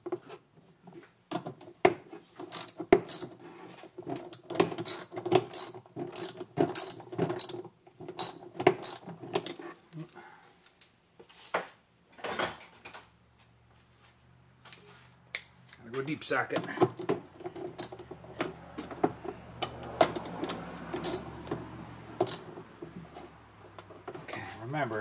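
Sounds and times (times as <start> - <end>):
socket ratchet clicking: 21.0 - 21.3, 22.2 - 22.5.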